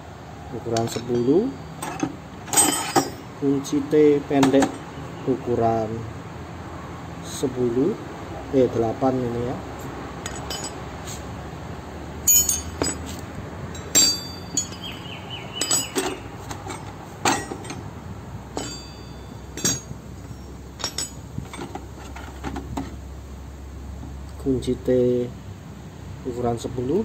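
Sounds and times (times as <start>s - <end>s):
metal wrenches clinking: 0.7s - 3.4s, 10.2s - 10.8s, 12.2s - 23.0s.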